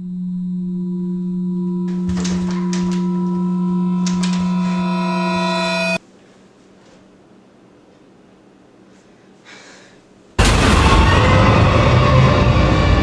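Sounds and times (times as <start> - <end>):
higher ringing tones: 0.0 - 6.0
low drone tone: 0.0 - 6.0, 10.4 - 13.0
clicks and knocks: 1.9 - 5.5.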